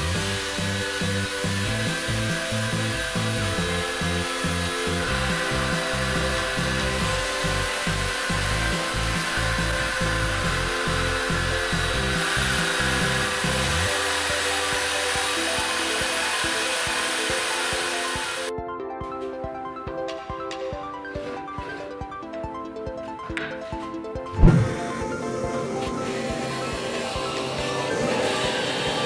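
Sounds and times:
belt sander grinding metal rod: 0.0s - 18.5s
background music with steady beat: 0.0s - 29.0s.

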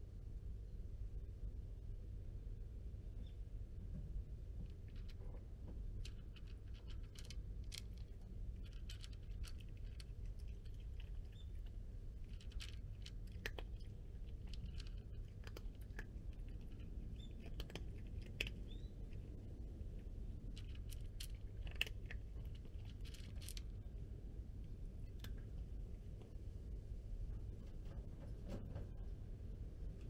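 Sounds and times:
cat crunching dry kibble: 4.7s - 26.5s.

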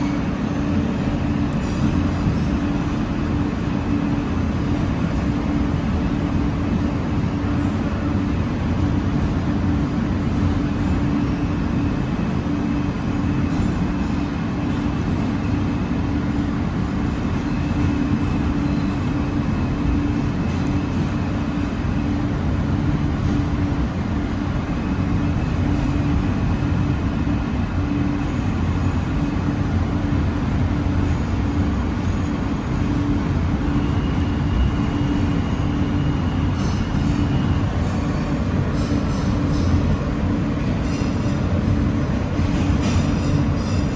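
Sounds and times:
constant hum: 0.0s - 43.9s
wheels rumbling on rails: 0.0s - 43.9s.

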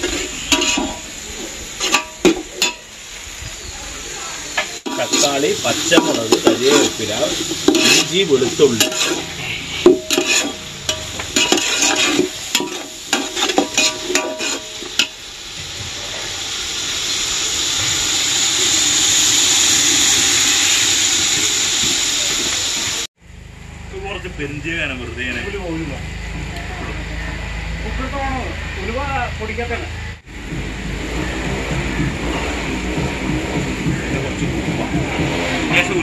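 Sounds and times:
spatula scraping meat in pan: 0.0s - 2.8s, 4.9s - 15.1s
meat sizzling in a pan: 0.0s - 23.1s.

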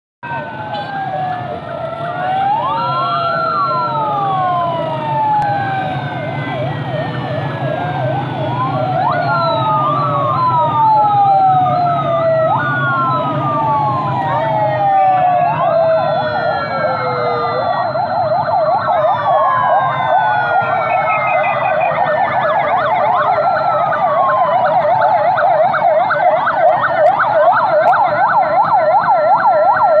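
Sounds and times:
fast siren yelp: 0.2s - 30.0s
low hum of engines: 0.2s - 30.0s
police sirens wailing: 0.2s - 30.0s.

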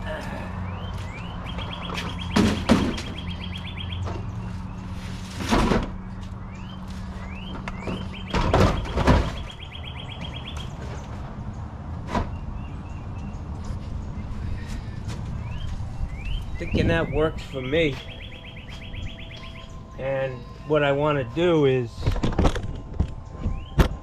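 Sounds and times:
birds chirping faintly: 6.0s - 22.0s.

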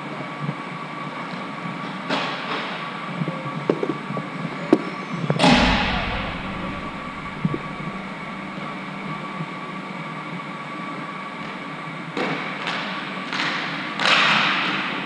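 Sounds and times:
loud ringing bang: 5.4s - 8.8s
steady hum: 5.4s - 9.0s.

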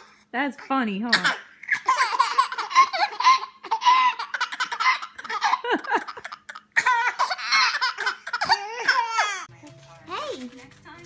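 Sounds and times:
babies laughing: 1.2s - 9.5s.

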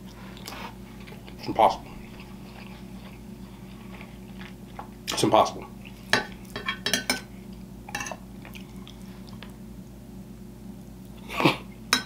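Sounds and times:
chewing soft food: 0.0s - 6.6s, 8.3s - 10.0s.

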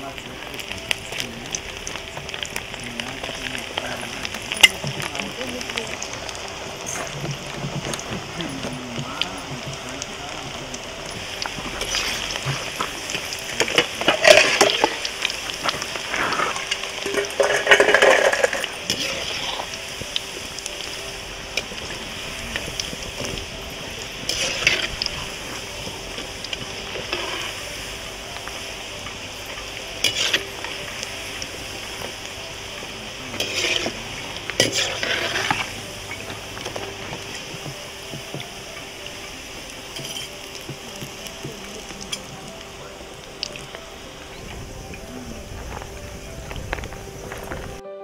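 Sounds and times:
food sizzling in hot oil: 0.0s - 47.8s
metal spoon scraping pan: 26.9s - 27.6s, 30.0s - 30.8s, 33.3s - 37.6s.

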